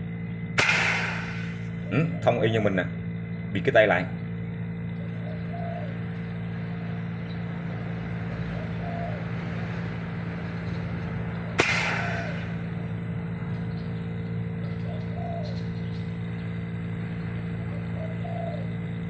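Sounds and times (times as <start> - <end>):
compressor humming: 0.0 - 19.0
sharp pop with hiss: 0.6 - 1.6, 11.6 - 12.6.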